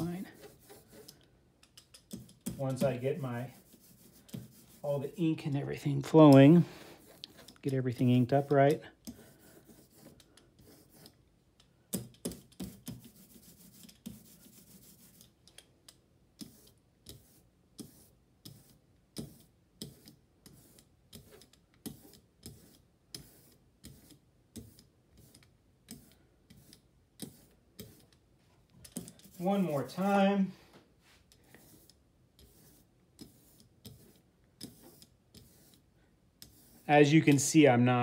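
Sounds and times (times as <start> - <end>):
rubber roller rolling ink: 0.0 - 1.2, 2.2 - 5.0, 7.0 - 11.2, 16.4 - 30.3, 31.1 - 37.5.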